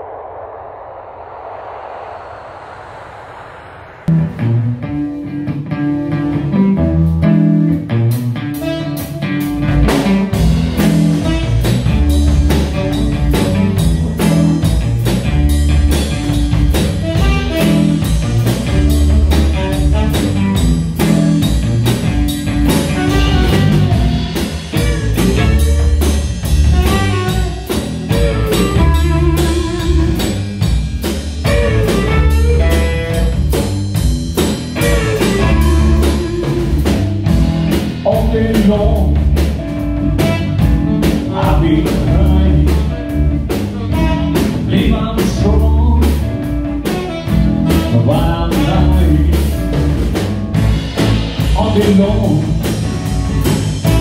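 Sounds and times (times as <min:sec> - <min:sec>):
electric guitar: 0:00.0 - 0:54.0
saxophone: 0:08.5 - 0:09.5, 0:11.1 - 0:14.4, 0:17.0 - 0:21.0, 0:22.6 - 0:30.5, 0:31.4 - 0:33.8, 0:34.8 - 0:37.2, 0:39.9 - 0:41.6, 0:43.7 - 0:44.8, 0:46.5 - 0:49.3, 0:52.9 - 0:54.0
drum kit steady beat: 0:09.8 - 0:45.8, 0:46.4 - 0:54.0
low bass line: 0:31.2 - 0:46.7.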